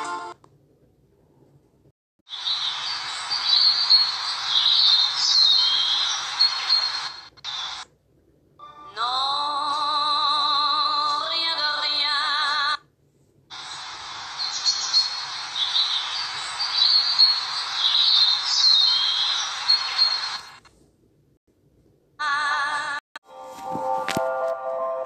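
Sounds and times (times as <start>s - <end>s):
birds chirping: 2.3s - 7.8s, 13.5s - 20.6s
steady hiss: 2.3s - 7.9s, 13.5s - 20.7s.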